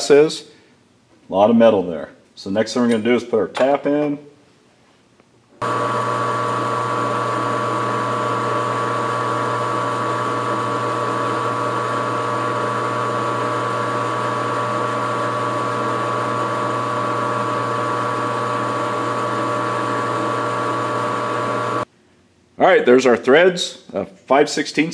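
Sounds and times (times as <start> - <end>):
metal lathe running: 5.6 - 21.8.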